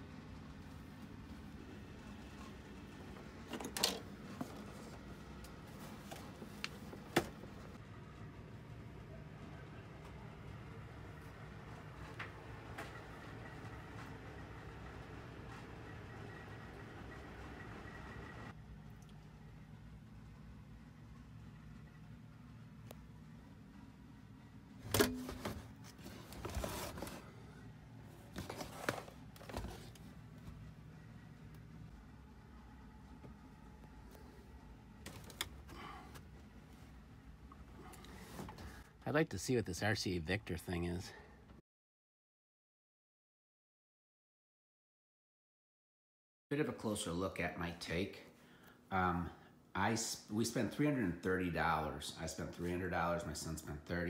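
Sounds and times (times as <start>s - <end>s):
low room hum: 0.0s - 41.6s, 46.5s - 54.0s
rustling and scraping: 2.2s - 7.6s, 24.8s - 30.6s.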